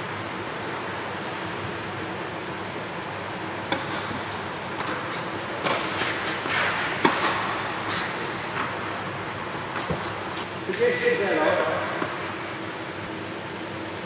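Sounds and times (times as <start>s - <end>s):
steady background hum: 0.0s - 14.0s
tennis ball struck by rackets: 3.7s - 4.2s, 5.6s - 8.1s.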